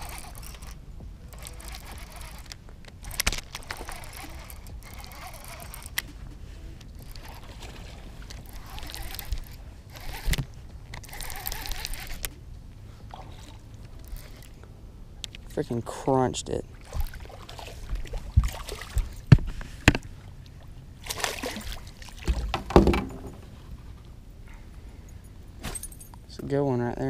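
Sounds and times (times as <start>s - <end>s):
fishing reel ratchet: 0.0s - 6.0s, 7.0s - 7.5s, 8.3s - 12.3s, 13.4s - 14.6s
water splashing: 16.5s - 19.3s, 20.1s - 23.2s
sharp knocks: 22.3s - 23.4s.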